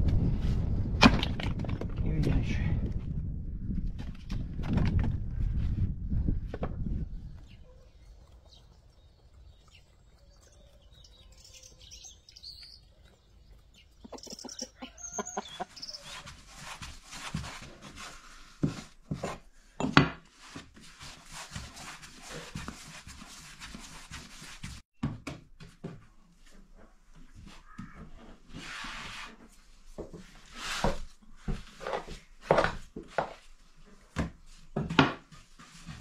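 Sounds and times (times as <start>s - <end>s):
small birds chirping: 7.0s - 16.4s
hens clucking: 7.4s - 16.5s.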